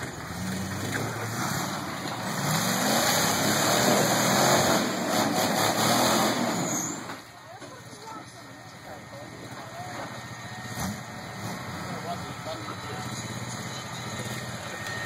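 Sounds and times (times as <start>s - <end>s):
engine revving under load: 0.0s - 7.2s, 10.1s - 15.0s.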